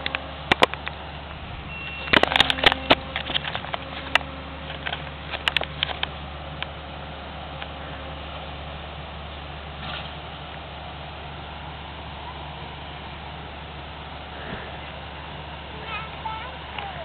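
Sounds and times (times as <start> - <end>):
sharp clicks and crackles: 0.0 - 1.0, 2.0 - 6.8
combine harvester droning: 0.0 - 17.0.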